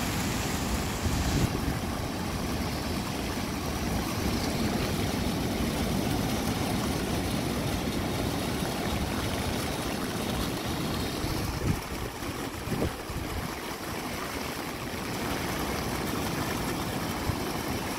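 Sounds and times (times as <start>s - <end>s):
wind rumbling on microphone: 0.0s - 4.8s, 11.0s - 13.5s
surf breaking on rocks: 0.0s - 7.0s.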